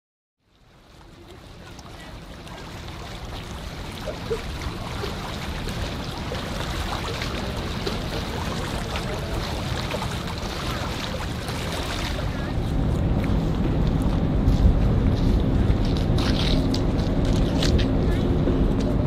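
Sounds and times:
small waves lapping: 0.4 - 19.0
wind on microphone: 3.8 - 19.0.

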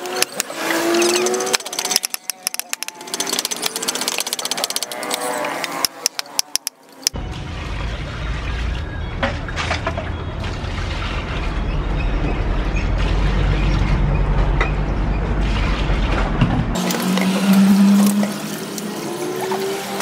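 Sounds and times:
steady low rumble: 7.2 - 16.8.

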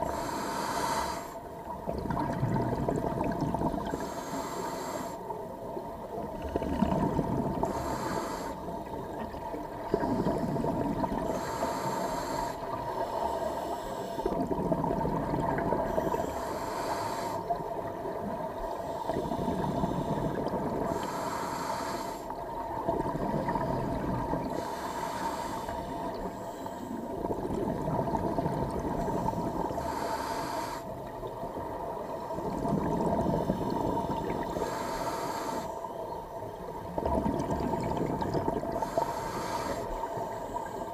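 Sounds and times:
regulator inhale hiss: 0.0 - 1.5, 3.8 - 5.4, 7.5 - 8.8, 10.0 - 14.4, 15.8 - 17.7, 18.6 - 22.5, 24.4 - 27.2, 29.0 - 31.1, 33.2 - 36.2, 38.7 - 40.9
bubbling exhale: 0.0 - 5.2, 6.4 - 18.2, 18.8 - 22.3, 22.9 - 31.1, 32.2 - 35.8, 36.9 - 40.9
faint hum: 0.0 - 40.9.

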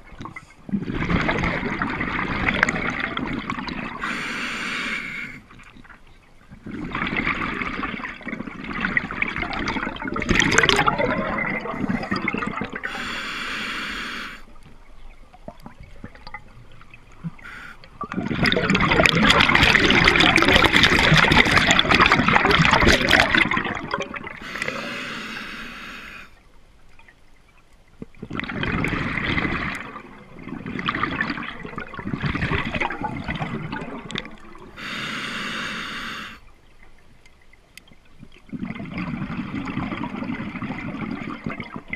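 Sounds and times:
exhaled bubbles gurgling: 0.0 - 26.4, 28.0 - 36.9, 38.1 - 41.9
regulator inhalation hiss: 4.0 - 5.4, 12.9 - 14.5, 17.4 - 17.8, 24.4 - 26.3, 34.8 - 36.4.

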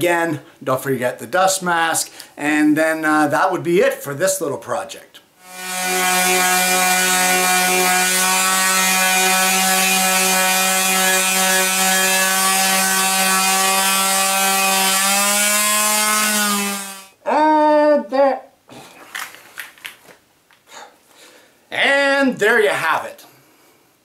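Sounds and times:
sandpaper hissing on wood: 5.4 - 17.1
orbital sander running: 5.4 - 17.2.

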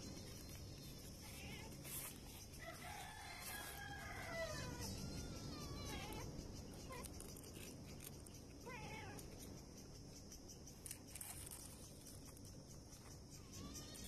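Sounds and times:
faint background noise: 0.0 - 14.0
cat meowing: 1.2 - 1.8, 4.4 - 6.3, 8.6 - 9.2.

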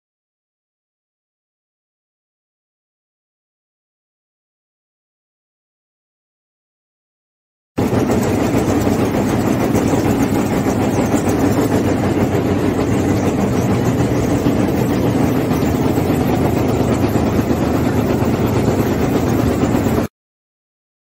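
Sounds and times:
industrial machine running: 7.8 - 20.1
low hum: 7.8 - 20.1.

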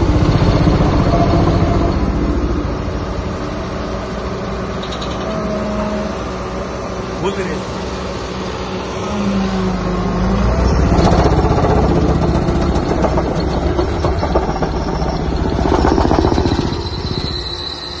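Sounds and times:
diesel engine running: 0.0 - 18.0
fast rattle: 10.9 - 17.8.

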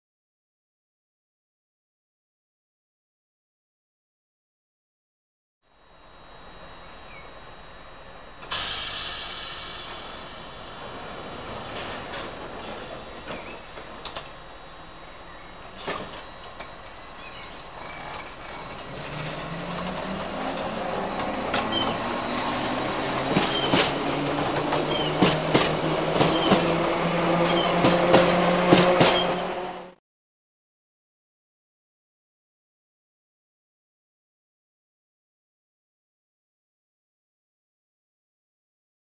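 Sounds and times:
train motor hum: 5.8 - 30.0
wheels clicking over rail joints: 23.1 - 29.4.

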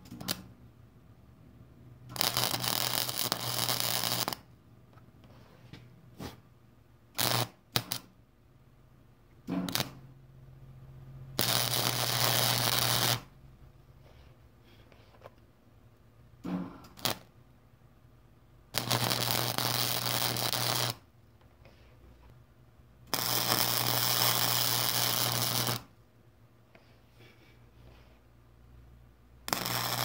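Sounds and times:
welding arc crackling: 2.1 - 4.5, 7.2 - 8.1, 9.6 - 10.0, 11.4 - 13.3, 16.9 - 17.3, 18.7 - 21.0, 23.1 - 25.9, 29.5 - 30.0
welder humming: 11.4 - 13.3, 18.7 - 21.0, 23.1 - 25.9, 29.5 - 30.0.

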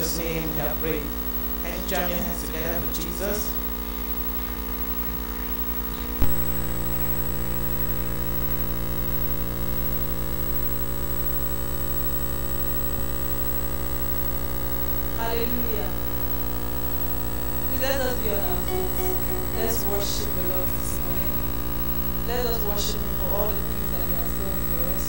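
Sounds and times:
electrical mains hum: 0.0 - 25.0.

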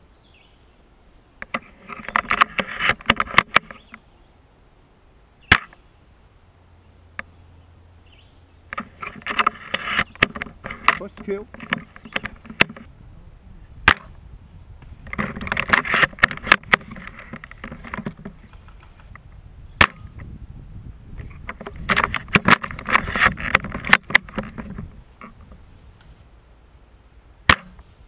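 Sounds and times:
rustling and scraping in brush: 1.4 - 4.1, 8.7 - 13.0, 13.7 - 20.4, 21.1 - 26.4
airsoft gun shots: 5.5 - 5.8, 27.5 - 27.8.

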